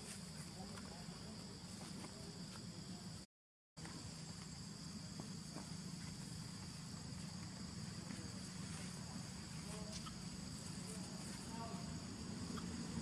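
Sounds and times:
faint chirping calls: 0:08.4 - 0:13.0.

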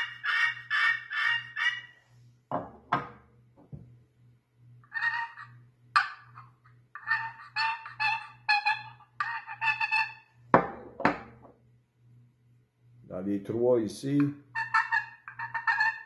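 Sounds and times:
turkey call yelps: 0:00.0 - 0:01.9, 0:04.9 - 0:06.4, 0:07.0 - 0:10.3, 0:14.4 - 0:16.0.

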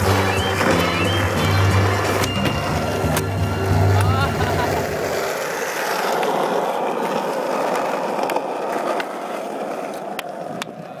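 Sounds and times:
skateboard wheels rolling on concrete: 0:00.0 - 0:11.0
light skateboard clicks: 0:05.7 - 0:11.0.

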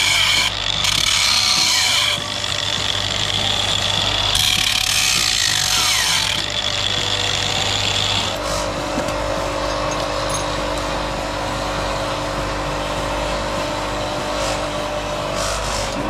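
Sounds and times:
angle grinder grinding metal: 0:00.0 - 0:12.4.

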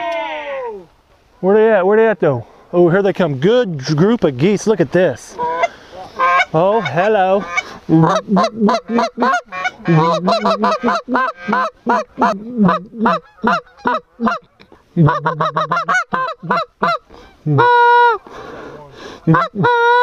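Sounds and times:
goose honking: 0:05.4 - 0:18.2, 0:19.2 - 0:20.0.

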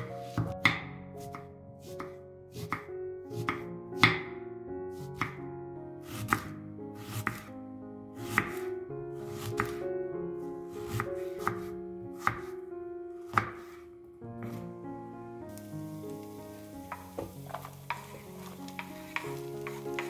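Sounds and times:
knife slicing onion on board: 0:00.0 - 0:04.2, 0:05.0 - 0:05.4, 0:06.0 - 0:07.5, 0:08.2 - 0:08.6, 0:09.3 - 0:09.8, 0:10.8 - 0:12.5, 0:13.2 - 0:13.8, 0:14.4 - 0:14.6, 0:16.9 - 0:20.0
soft background music: 0:00.0 - 0:20.0.

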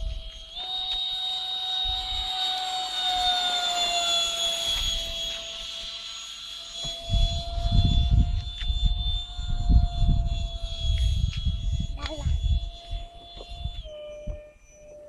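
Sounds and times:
ducted-fan motor whine: 0:00.0 - 0:15.0
low buffeting rumble: 0:07.0 - 0:14.4.

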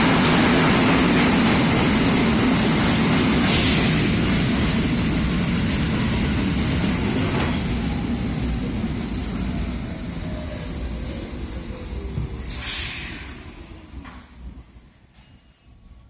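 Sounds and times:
train wheels rumbling on rails: 0:00.0 - 0:16.0
high steady brake squeal: 0:08.2 - 0:13.4, 0:14.6 - 0:16.0.

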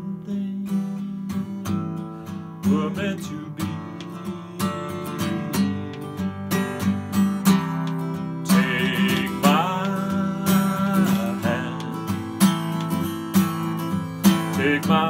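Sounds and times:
man singing wordlessly: 0:00.0 - 0:01.0, 0:02.6 - 0:06.3, 0:08.4 - 0:13.2, 0:14.2 - 0:15.0
acoustic guitar strumming: 0:00.0 - 0:15.0.

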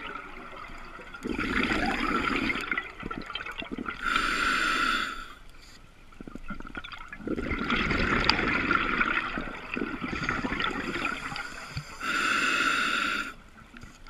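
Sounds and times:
exhalation bubbling underwater: 0:00.0 - 0:04.2, 0:06.2 - 0:11.6
regulator hissing inhalation: 0:04.0 - 0:05.4, 0:10.2 - 0:13.4.

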